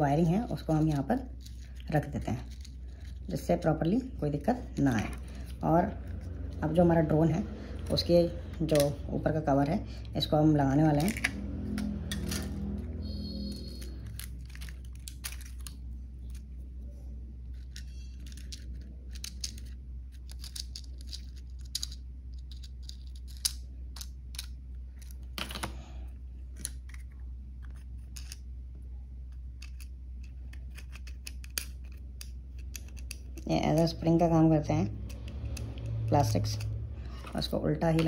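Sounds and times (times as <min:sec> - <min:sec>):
plastic parts clicking and scratching: 0:00.7 - 0:03.7, 0:13.5 - 0:16.5, 0:17.4 - 0:25.7, 0:26.5 - 0:28.5, 0:29.3 - 0:34.1.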